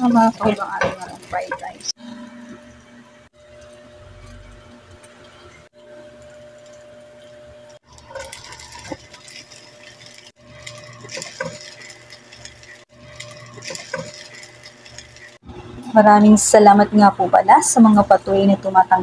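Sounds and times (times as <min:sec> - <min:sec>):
spatula scraping and knocking pan: 0:00.1 - 0:02.0
rice sizzling in a pan: 0:07.5 - 0:15.4.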